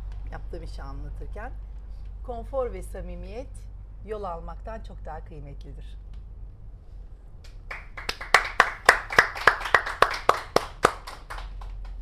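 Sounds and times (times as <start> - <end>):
hands clapping: 7.4 - 12.0.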